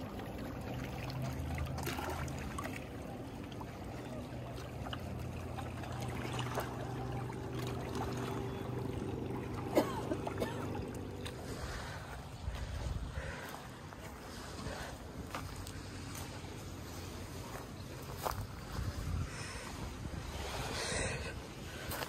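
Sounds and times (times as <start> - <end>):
low hum: 0.0 - 22.0
water lapping and trickling: 0.0 - 22.0.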